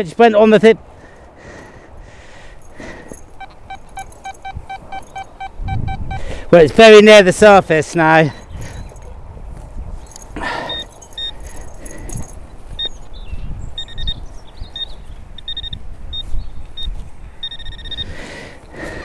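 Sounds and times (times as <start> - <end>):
metal detector beeping: 2.8 - 6.4, 10.1 - 13.1, 13.8 - 18.2.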